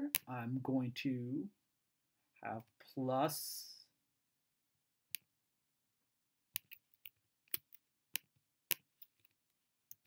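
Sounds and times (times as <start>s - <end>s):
mouse and key clicks: 6.5s - 10.0s.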